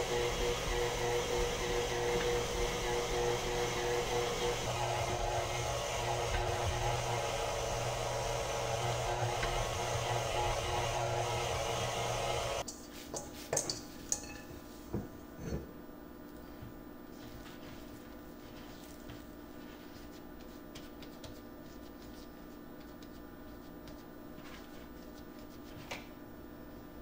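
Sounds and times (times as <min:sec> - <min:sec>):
stand mixer kneading dough: 0:00.0 - 0:12.6.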